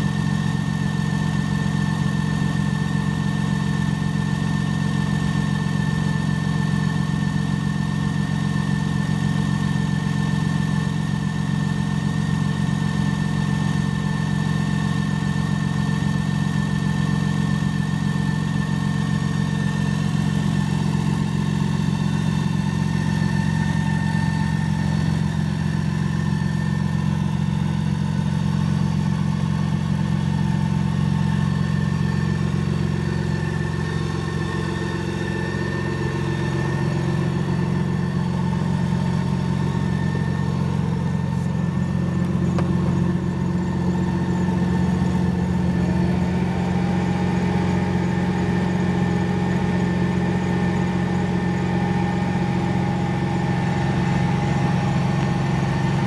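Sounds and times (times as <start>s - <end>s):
engine idling: 0.0s - 56.0s.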